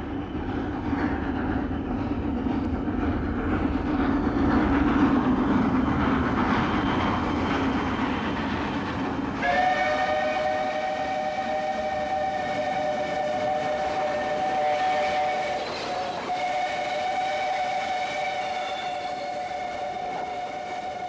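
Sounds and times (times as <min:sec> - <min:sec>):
steam locomotive chugging: 0:00.0 - 0:21.0
steam whistle chord: 0:09.4 - 0:21.0.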